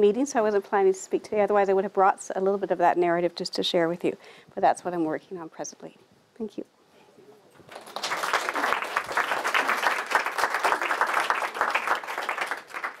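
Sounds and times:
audience applauding: 7.6 - 13.0.

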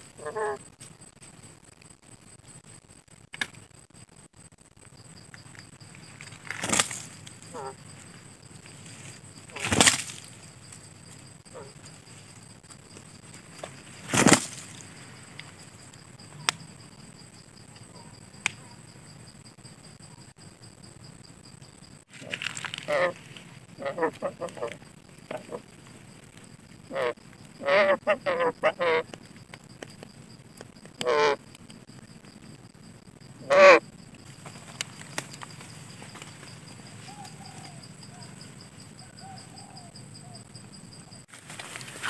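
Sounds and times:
high insect buzz: 0.0 - 42.0
sharp clicks: 3.3 - 3.6
parrot wings flapping: 6.2 - 7.3, 8.9 - 10.4, 13.6 - 15.0.

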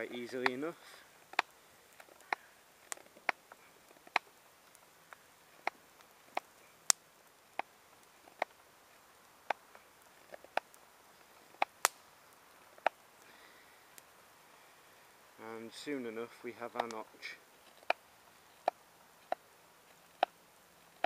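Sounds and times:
campfire crackling: 0.0 - 21.0.

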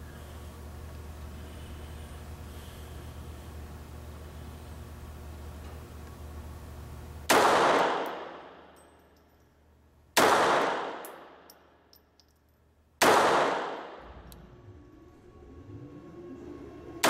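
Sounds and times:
pistol shots echoing indoors: 7.3 - 9.3, 10.1 - 12.0, 13.0 - 14.1.

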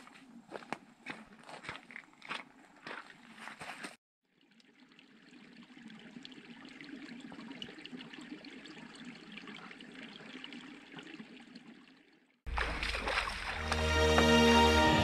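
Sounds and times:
creek trickling over stones: 4.3 - 14.5.

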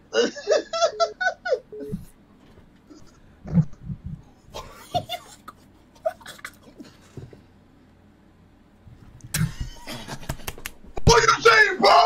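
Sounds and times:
man laughing: 0.1 - 2.1, 4.5 - 6.9, 9.3 - 10.6.

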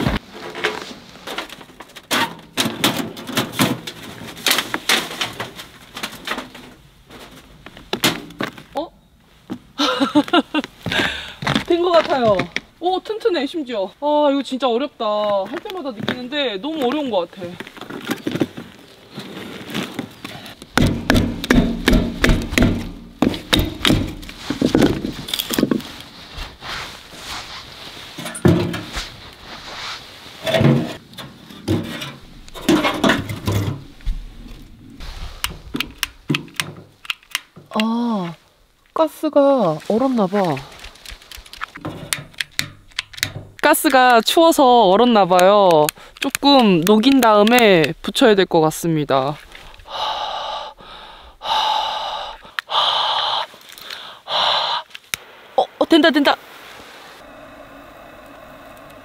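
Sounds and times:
metal chimney pipe knocking: 20.8 - 24.3.

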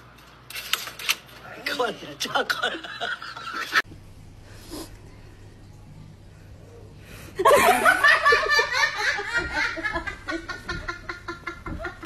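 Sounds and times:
person laughing loudly: 7.4 - 12.0.

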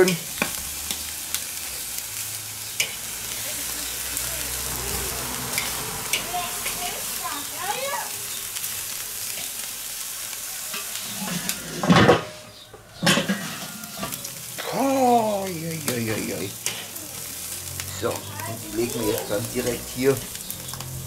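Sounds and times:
meat sizzling over coals: 0.0 - 21.0
grill lid clanking shut: 11.1 - 12.4, 13.0 - 14.2.

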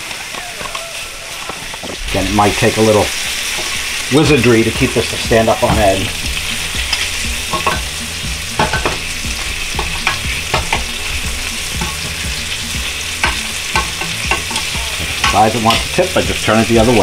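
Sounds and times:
meat sizzling in a pan: 0.0 - 17.0
tongs clicking and scraping: 6.4 - 16.4.

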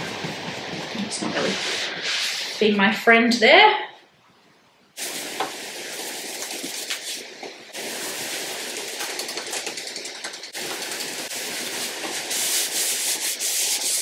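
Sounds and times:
paintbrush scrubbing wood: 11.4 - 14.0
cloth rubbing over wood: 11.5 - 14.0.

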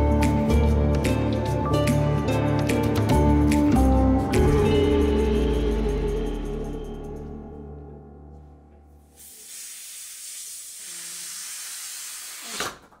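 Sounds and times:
background music: 0.0 - 9.3
air hissing from balloon: 9.1 - 12.9.

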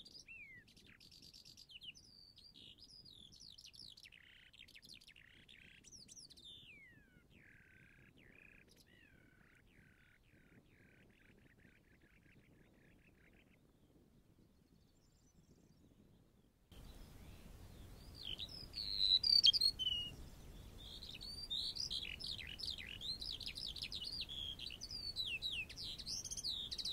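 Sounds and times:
songbird singing: 0.0 - 26.9
faint high chirping: 16.7 - 26.9.

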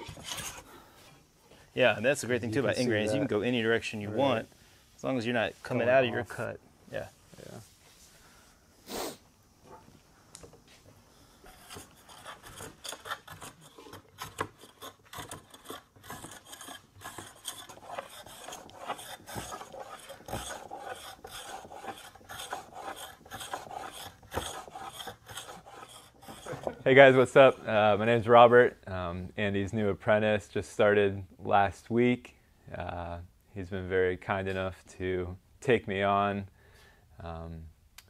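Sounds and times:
hand plane shaving wood: 11.5 - 26.8.

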